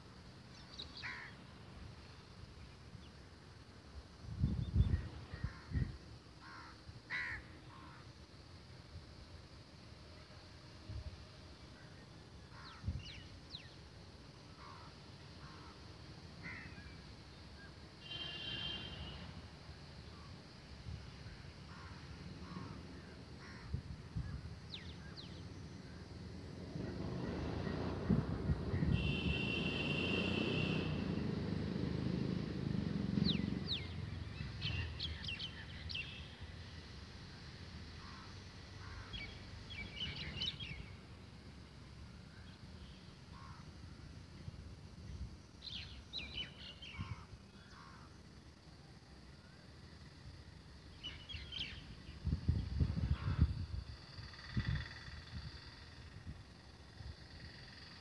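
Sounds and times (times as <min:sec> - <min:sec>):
crows cawing faintly: 0:01.0 - 0:01.4, 0:05.3 - 0:08.1, 0:14.6 - 0:17.0, 0:21.6 - 0:23.8, 0:38.0 - 0:39.4, 0:43.3 - 0:43.8, 0:47.0 - 0:48.2, 0:53.1 - 0:53.6
birds calling with sharp high notes: 0:33.2 - 0:36.4.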